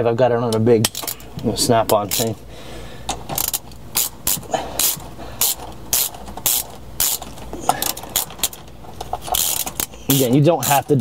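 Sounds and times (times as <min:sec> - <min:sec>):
ratchet pawl clicks: 0:03.4 - 0:10.9.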